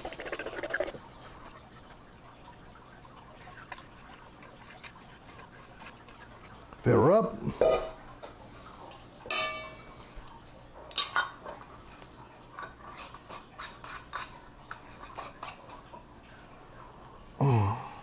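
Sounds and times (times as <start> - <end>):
metal spoon scraping steel bowl: 12.6 - 15.6.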